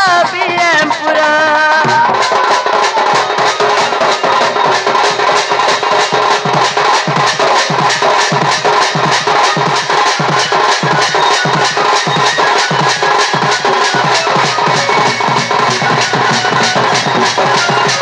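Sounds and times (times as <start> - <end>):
person singing: 0.0 - 4.4
folk dance music: 0.0 - 18.0.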